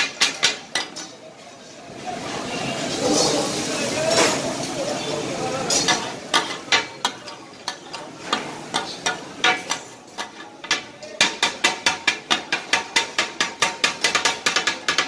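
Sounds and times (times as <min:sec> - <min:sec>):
metal blades clacking on griddle: 0:00.0 - 0:01.2, 0:05.7 - 0:15.0
faint sizzling: 0:01.0 - 0:11.4.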